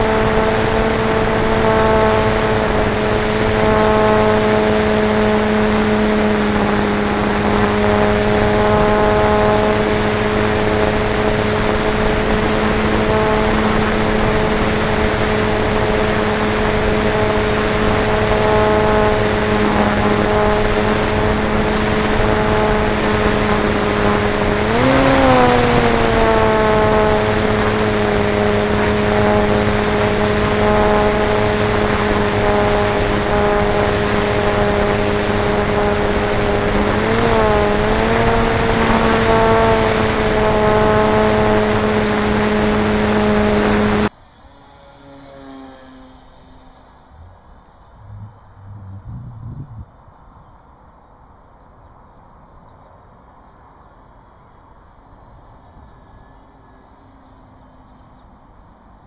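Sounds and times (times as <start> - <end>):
electric motor whine: 0.0 - 49.6
rushing air: 46.1 - 50.0.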